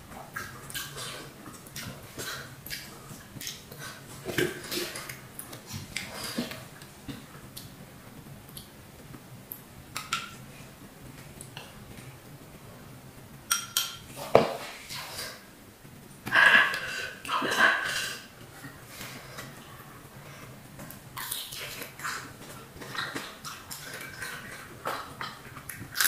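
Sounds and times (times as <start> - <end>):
wet chewing clicks: 20.9 - 26.0.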